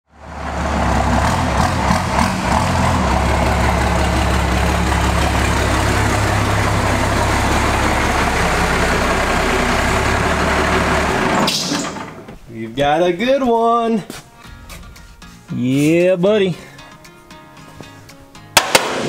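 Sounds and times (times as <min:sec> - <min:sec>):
diesel truck engine rumbling: 0:00.0 - 0:12.8.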